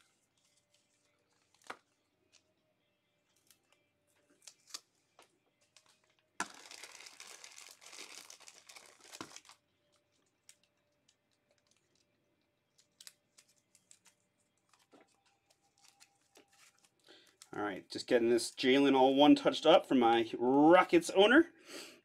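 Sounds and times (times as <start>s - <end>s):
plastic wrapping crinkling: 0.0s - 2.4s, 3.3s - 12.1s, 12.7s - 17.6s.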